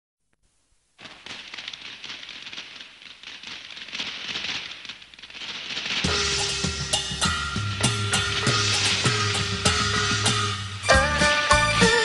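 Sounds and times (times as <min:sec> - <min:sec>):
dense crackling and popping: 0:00.3 - 0:12.0.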